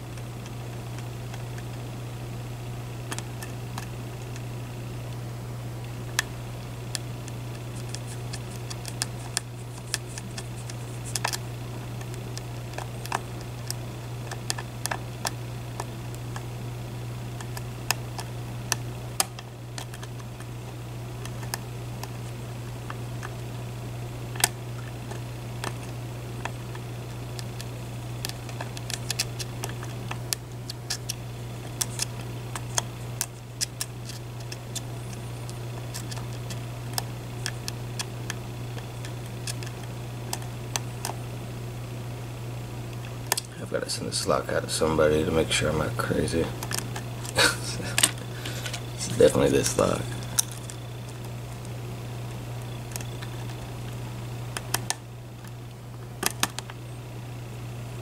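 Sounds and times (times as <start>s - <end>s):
steady low hum: 0.0s - 58.0s
lock picking metallic clicks: 56.2s - 56.8s.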